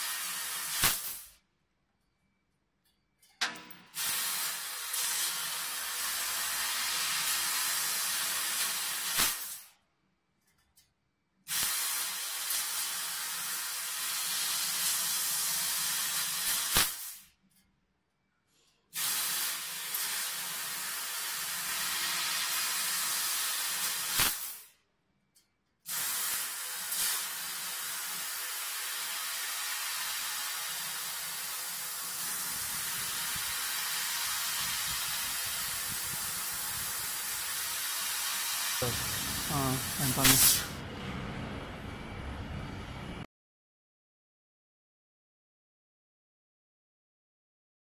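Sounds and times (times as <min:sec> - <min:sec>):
laser cutter gas jet hissing: 0:00.0 - 0:01.4, 0:03.9 - 0:09.7, 0:11.5 - 0:17.3, 0:19.0 - 0:24.7, 0:25.9 - 0:40.8
sharp crack: 0:00.8 - 0:01.3, 0:09.1 - 0:09.7, 0:16.6 - 0:17.2, 0:24.1 - 0:24.7, 0:38.8 - 0:40.8.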